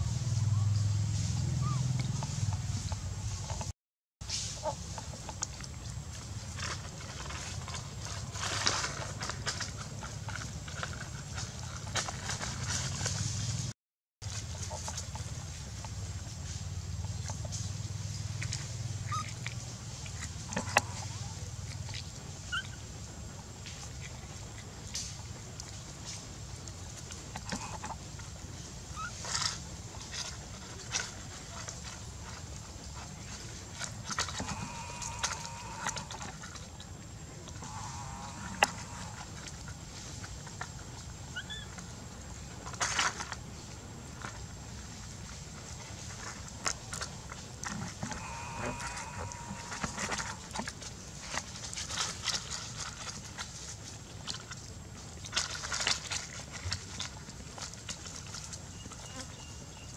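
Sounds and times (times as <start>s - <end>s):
steady low rumble: 0.0s - 3.7s
dry leaf crinkling and rustling: 4.5s - 16.4s, 17.6s - 58.7s.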